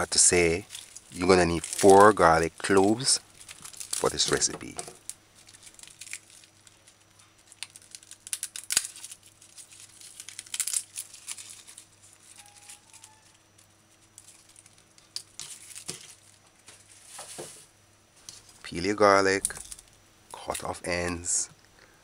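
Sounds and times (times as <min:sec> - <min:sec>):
dry garlic skins rustling: 0:00.0 - 0:21.4.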